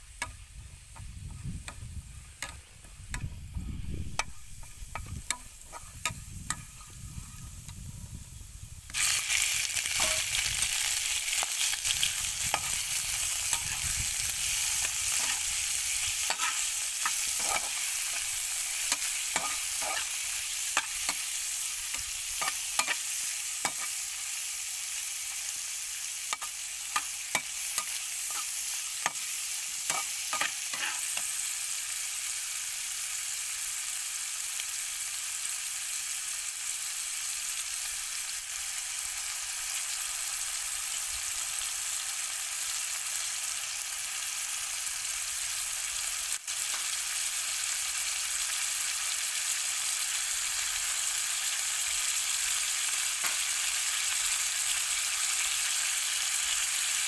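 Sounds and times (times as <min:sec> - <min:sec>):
garlic frying in oil: 0:00.0 - 0:57.0
shrimp sizzling in hot oil: 0:00.0 - 0:57.0
metal spatula scraping pan: 0:04.2 - 0:07.4, 0:09.9 - 0:10.4, 0:13.5 - 0:24.0, 0:26.3 - 0:29.2, 0:29.9 - 0:31.2.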